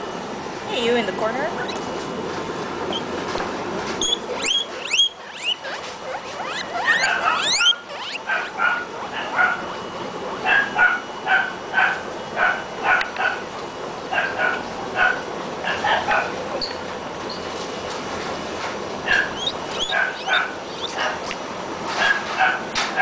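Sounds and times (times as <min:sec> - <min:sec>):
guinea pigs wheeking: 0:02.9 - 0:03.1, 0:04.0 - 0:13.4, 0:19.0 - 0:21.4.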